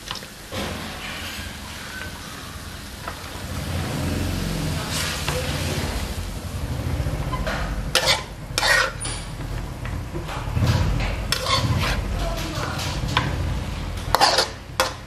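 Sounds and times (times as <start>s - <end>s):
noodles sizzling in a wok: 0.0s - 10.2s, 11.1s - 12.2s, 12.8s - 15.0s
low steady rumble: 0.8s - 15.0s
tongs scraping on a wok: 7.3s - 9.4s, 11.0s - 13.4s, 14.0s - 15.0s.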